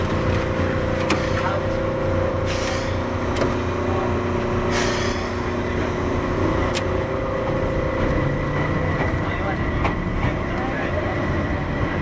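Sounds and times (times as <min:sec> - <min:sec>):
train rumble with motor hum: 0:00.0 - 0:12.0
short hisses: 0:04.7 - 0:05.5.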